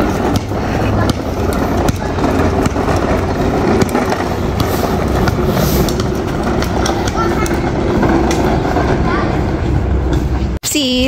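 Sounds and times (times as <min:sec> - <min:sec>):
basketball bouncing on pavement: 0:00.0 - 0:08.6
plastic wheels rolling on asphalt: 0:00.0 - 0:10.6.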